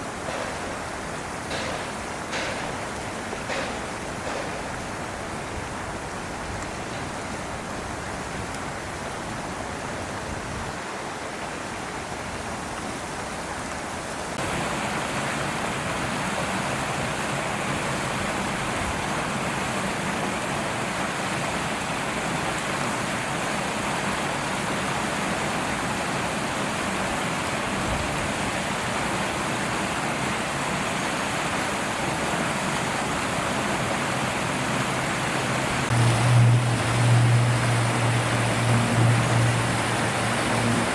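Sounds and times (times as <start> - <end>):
steady rushing noise: 32.8 - 40.9.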